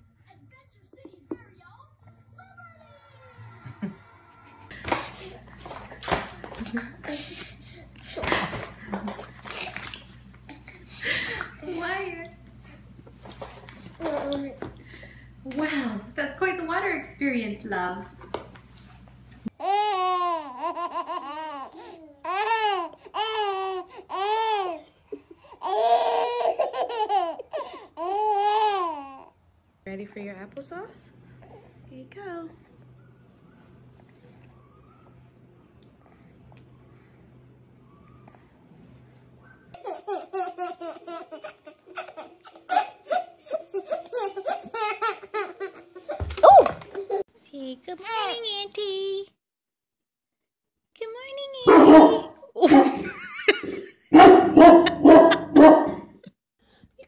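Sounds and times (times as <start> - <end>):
baby giggling: 19.6 - 24.8, 25.6 - 29.2, 39.8 - 46.2
babies laughing and squealing: 39.7 - 47.3.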